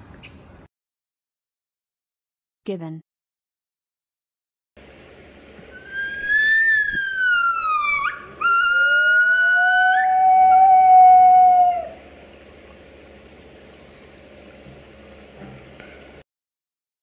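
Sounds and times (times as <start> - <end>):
gibbon whistling calls: 5.7 - 12.1.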